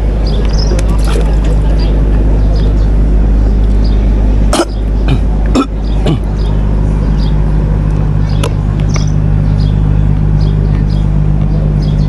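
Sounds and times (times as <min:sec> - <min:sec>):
boat engine idling: 0:00.0 - 0:12.0
man coughing: 0:04.5 - 0:06.4.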